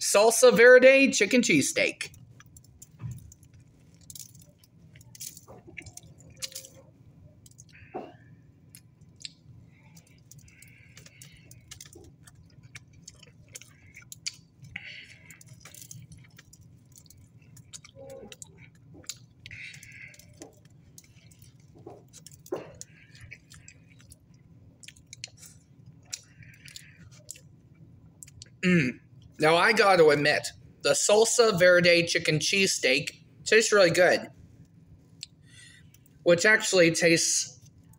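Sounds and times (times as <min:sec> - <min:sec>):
low room hum: 0:00.0 - 0:37.9
man biting and chewing food: 0:02.0 - 0:29.4.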